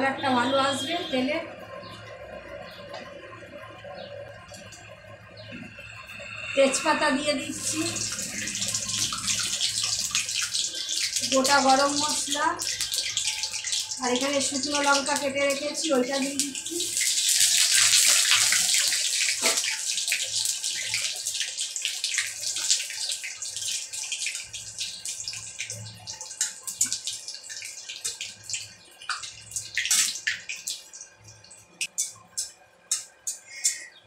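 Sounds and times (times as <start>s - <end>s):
spices sizzling in hot oil: 2.7s - 33.9s.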